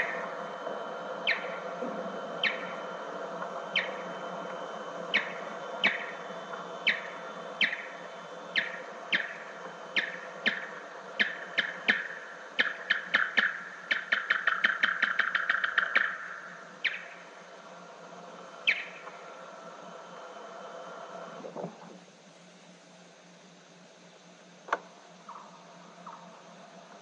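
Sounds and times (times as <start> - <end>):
slowed bat echolocation chirps: 0.0 - 17.5, 18.5 - 19.3
tape hiss: 0.0 - 27.0.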